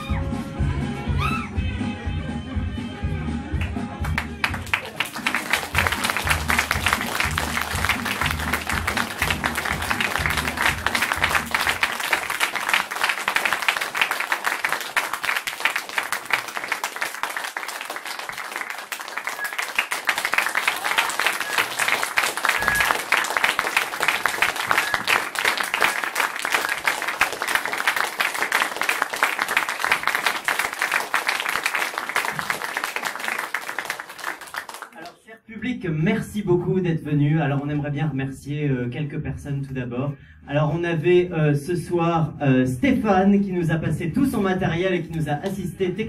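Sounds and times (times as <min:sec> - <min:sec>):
audience applauding: 0:03.6 - 0:35.2.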